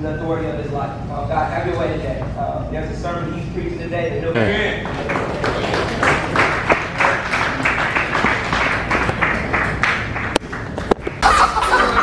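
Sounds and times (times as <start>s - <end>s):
crowd applauding: 4.8s - 12.0s.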